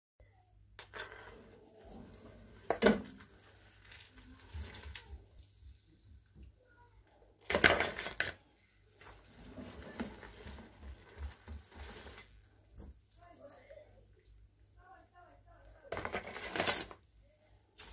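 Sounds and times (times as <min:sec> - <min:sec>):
shells clattering into plastic bowl: 0:07.5 - 0:08.4, 0:15.9 - 0:17.0.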